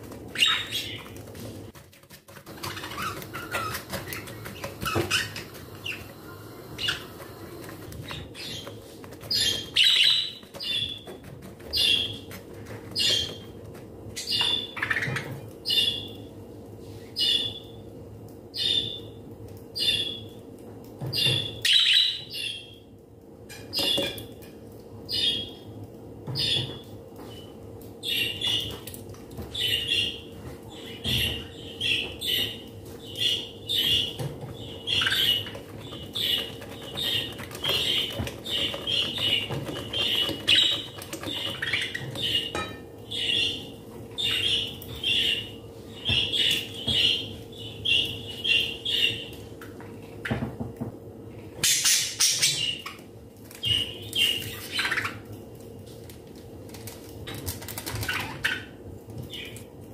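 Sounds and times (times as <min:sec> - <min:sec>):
faint steady hum: 0:00.0 - 0:59.9
whisk scraping glass bowl: 0:35.1 - 0:42.8.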